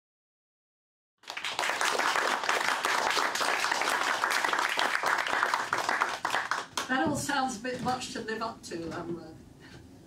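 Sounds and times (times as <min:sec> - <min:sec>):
audience applauding: 0:01.2 - 0:06.9.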